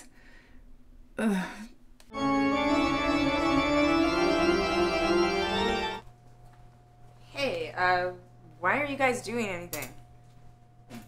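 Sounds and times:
organ-like keyboard chord: 2.1s - 6.1s.

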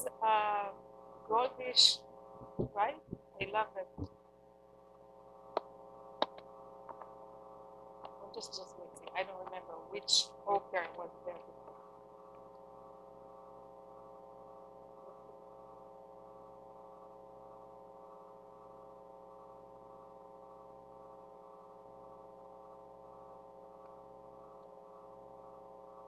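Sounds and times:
faint electrical hum: 0.0s - 26.0s.

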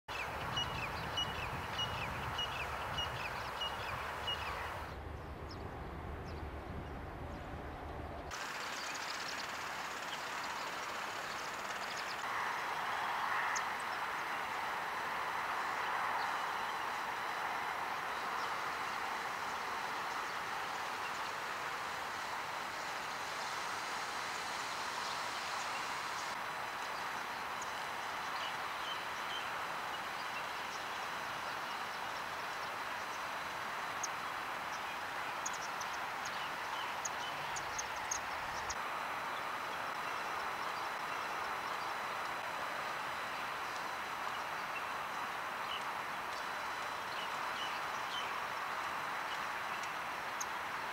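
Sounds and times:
small birds chirping: 0.1s - 7.4s, 24.9s - 50.7s
steady outdoor rushing noise: 0.1s - 50.9s.

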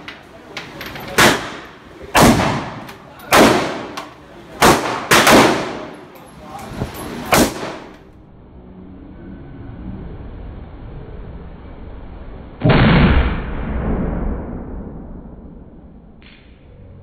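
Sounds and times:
rifle shots with ringing echo: 1.2s - 6.1s, 7.3s - 8.0s.

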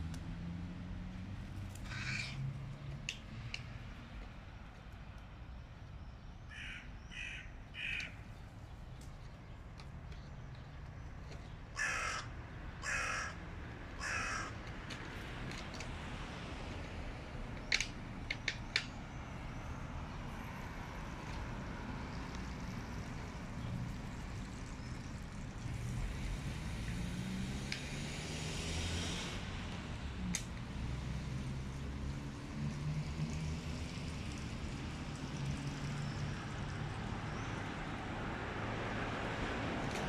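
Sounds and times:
crows cawing: 1.8s - 2.5s, 6.5s - 8.3s, 11.7s - 14.7s
sharp clicks: 17.6s - 18.9s.

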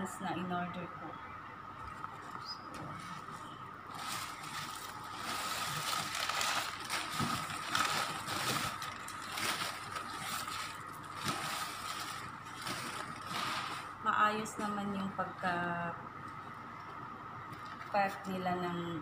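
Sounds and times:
faint steady whine: 0.0s - 19.0s
paper rustling and crinkling: 2.0s - 14.0s.

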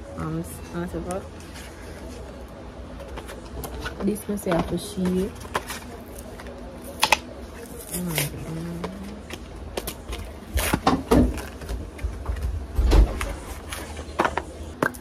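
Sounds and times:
person humming: 8.0s - 9.2s.

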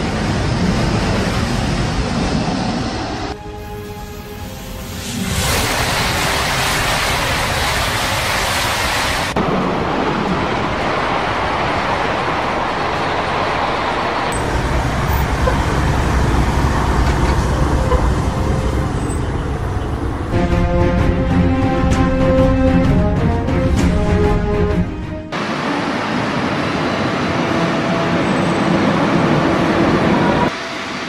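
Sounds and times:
high-speed trains passing: 0.0s - 31.0s
music with long held notes: 20.3s - 25.4s.

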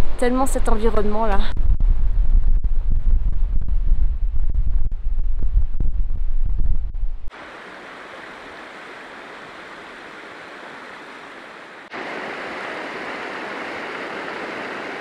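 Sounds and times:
river rushing over rocks: 7.3s - 15.0s.

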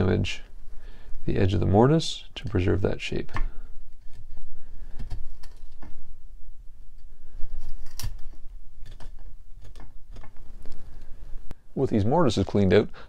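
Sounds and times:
chisel scraping and prying wood: 3.4s - 6.0s, 6.9s - 11.1s.

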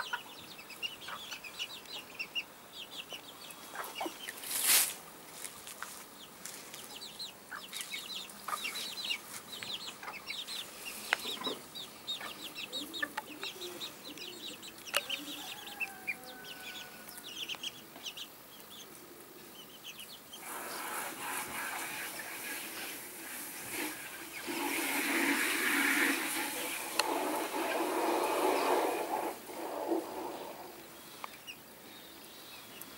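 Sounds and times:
hen clucking: 0.0s - 4.4s, 7.0s - 18.8s, 19.6s - 31.6s
chicks peeping: 0.0s - 4.8s, 5.8s - 32.9s
loud rough noise: 23.6s - 30.7s.

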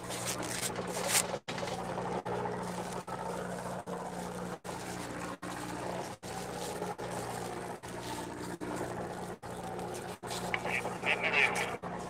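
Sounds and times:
boat engine droning: 0.0s - 12.0s
water wash: 0.0s - 12.0s.

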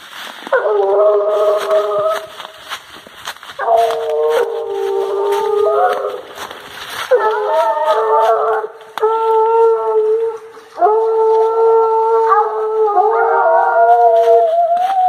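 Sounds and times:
hounds baying: 0.5s - 15.0s.

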